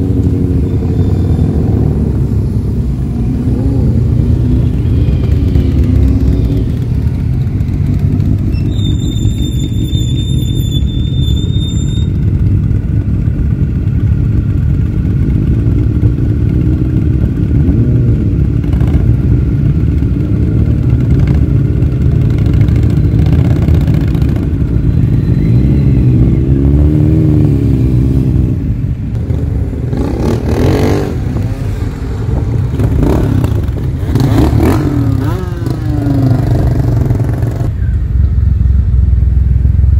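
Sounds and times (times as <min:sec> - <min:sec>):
motorcycles revving past: 0:20.0 - 0:37.8.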